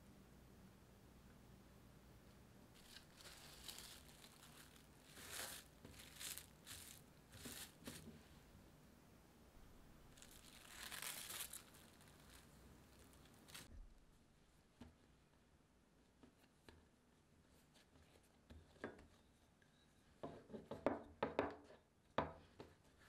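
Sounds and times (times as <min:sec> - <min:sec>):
plastic cling wrap crinkling: 0:02.7 - 0:08.1, 0:10.1 - 0:13.7.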